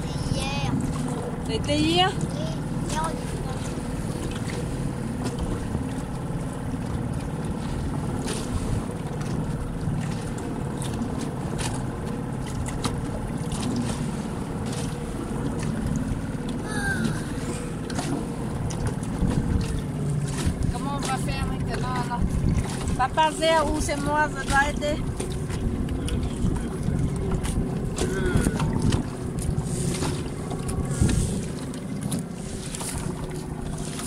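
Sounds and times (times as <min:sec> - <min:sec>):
outboard motor running: 0:00.0 - 0:34.0
water splashing against hull: 0:00.0 - 0:34.0
wind buffeting microphone: 0:15.2 - 0:33.7.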